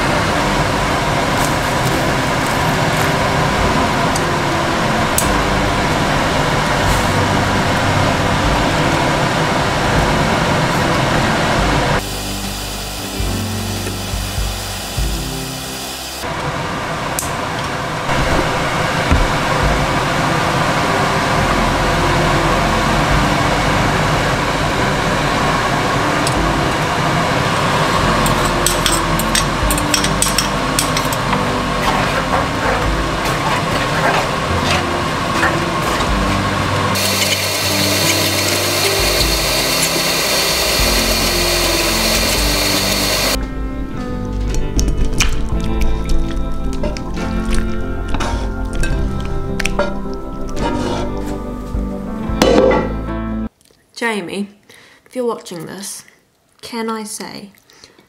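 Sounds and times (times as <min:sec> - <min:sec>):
background music: 0:00.0 - 0:16.4, 0:18.1 - 0:53.5
pasta sizzling in a frying pan: 0:36.9 - 0:43.4.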